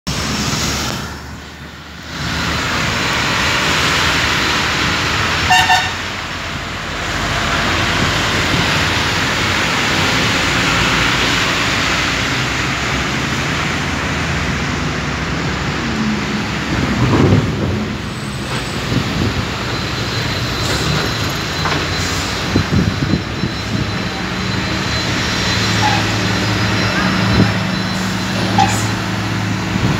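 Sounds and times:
diesel truck engine running: 0.1 - 29.9
short beep: 22.8 - 29.0.

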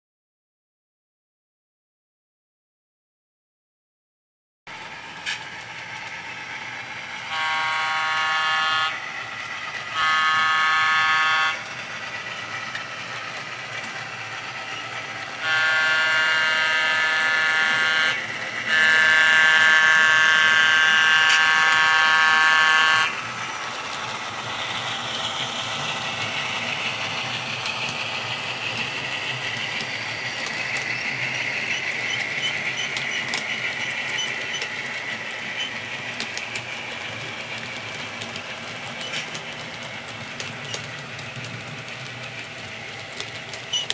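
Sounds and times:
train rolling on track: 4.7 - 43.9
locomotive chime horn blasts: 7.2 - 9.1, 9.8 - 11.7, 15.4 - 23.2.

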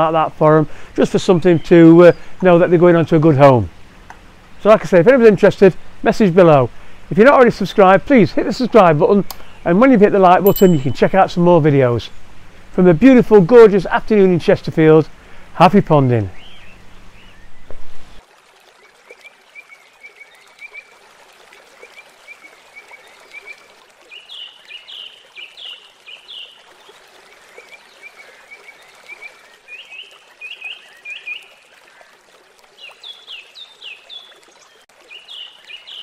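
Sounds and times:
birds chirping: 10.5 - 11.6, 16.0 - 18.2, 32.8 - 36.0
trickle of running water: 16.2 - 36.0.

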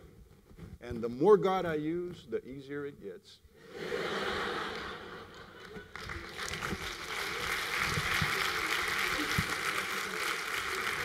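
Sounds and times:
audience laughing: 3.6 - 6.5, 8.6 - 11.0
audience applauding: 4.3 - 11.0.

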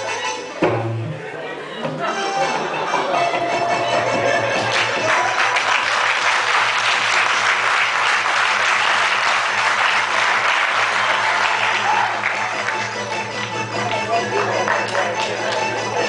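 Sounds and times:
audience applauding: 3.8 - 15.7.

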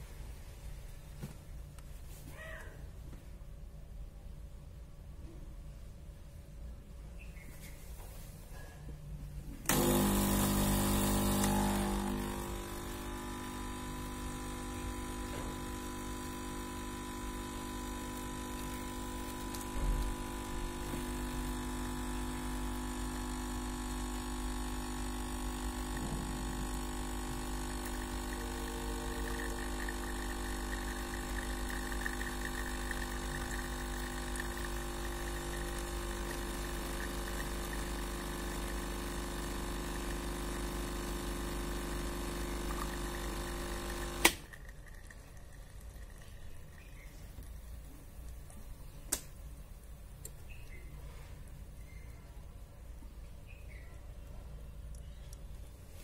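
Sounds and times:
espresso machine pump humming: 9.6 - 49.0.

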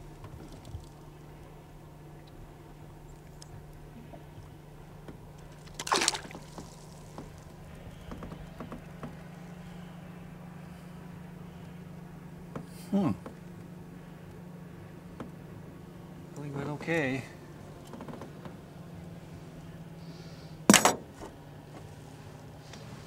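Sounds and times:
steady low hum: 0.0 - 23.0
water drips and lapping: 3.1 - 9.3
fish splashing at water surface: 5.6 - 7.6.

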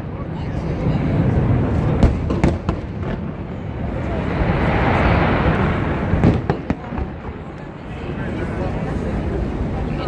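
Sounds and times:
sharp fireworks bangs: 1.3 - 7.5
fireworks bursting: 1.3 - 7.7.

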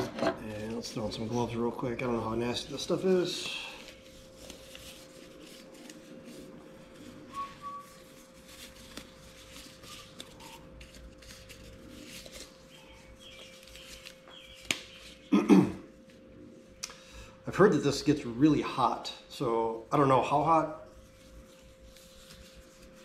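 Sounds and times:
faint steady hum: 0.0 - 23.0
gloves rustling and stretching: 0.5 - 15.3, 20.9 - 23.0
rubbery glove snap: 14.6 - 15.0.

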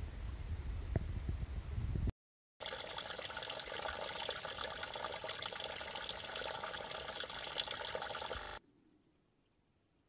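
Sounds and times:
water trickling into a pool: 2.6 - 8.6.

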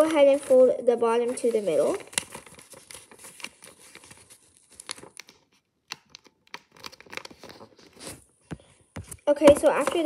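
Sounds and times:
paper being folded and creased: 0.0 - 8.3.

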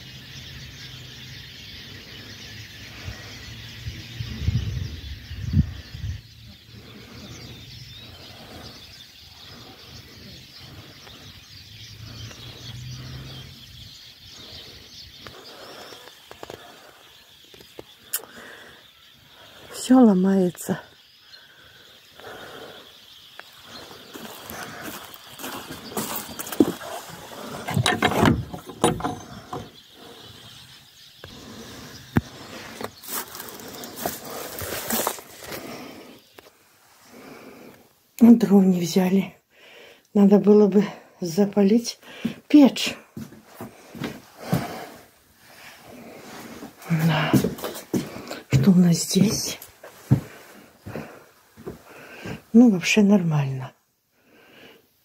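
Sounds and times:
songbirds chirping and singing: 0.0 - 55.0
wooden door and latch rattling: 27.6 - 29.8.

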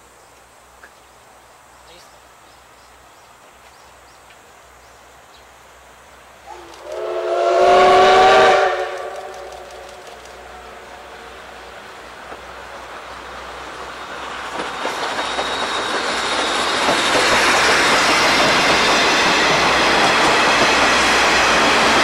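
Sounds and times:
train wheels rolling on track: 5.4 - 22.0.

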